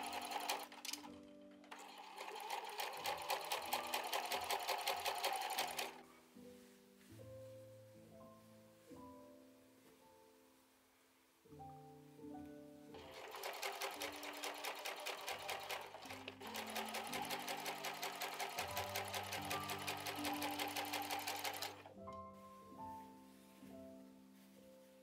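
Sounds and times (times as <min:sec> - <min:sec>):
electric sewing machine stitching: 0:00.0 - 0:06.0, 0:13.0 - 0:21.9
soft piano music: 0:00.0 - 0:25.0.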